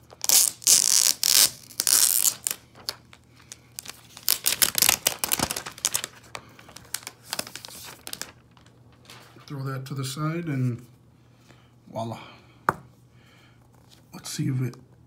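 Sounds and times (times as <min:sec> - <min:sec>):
plastic wrap crinkling and tearing: 0:00.0 - 0:09.4.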